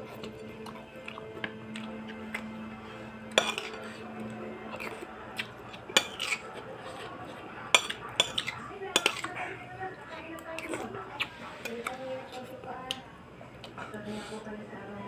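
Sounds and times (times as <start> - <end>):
spoon clinking against ceramic bowl: 3.3 - 3.9, 4.7 - 6.5, 7.7 - 9.4.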